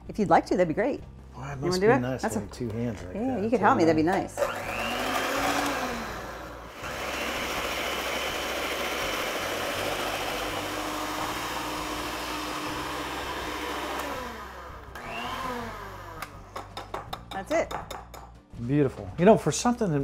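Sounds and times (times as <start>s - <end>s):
electric mixer running: 4.3s - 16.5s.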